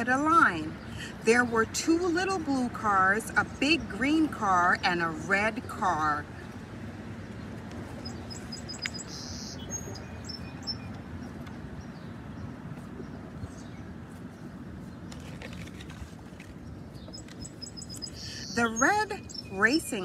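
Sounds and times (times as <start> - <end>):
faint high bird chirps: 8.0 - 11.0, 17.0 - 19.8.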